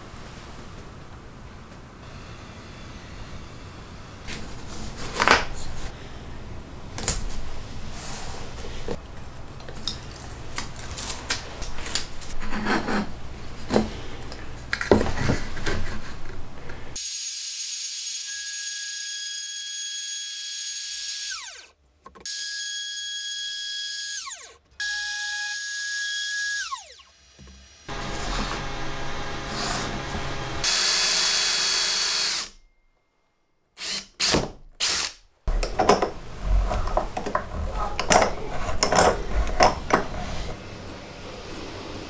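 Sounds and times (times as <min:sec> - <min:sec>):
trim router whining: 0:24.1 - 0:32.5.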